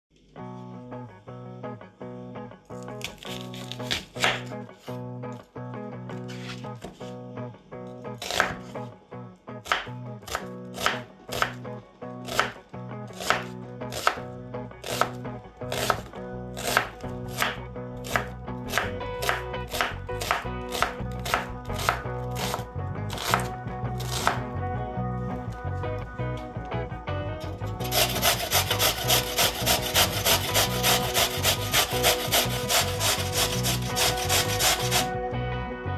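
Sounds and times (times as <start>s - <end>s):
knife chopping on cutting board: 3.0s - 4.6s, 6.3s - 7.1s, 8.2s - 8.7s, 9.7s - 11.6s, 12.3s - 14.2s, 14.8s - 24.4s, 27.8s - 35.1s.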